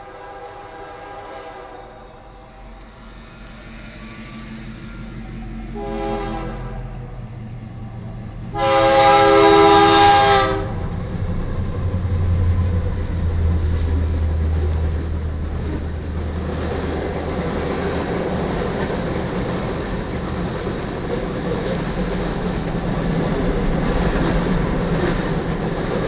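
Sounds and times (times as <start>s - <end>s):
locomotive air horn blasts: 0.0s - 2.2s, 5.7s - 7.2s, 8.5s - 10.9s
diesel locomotive rumble: 0.0s - 26.0s
freight cars rolling: 2.1s - 26.0s.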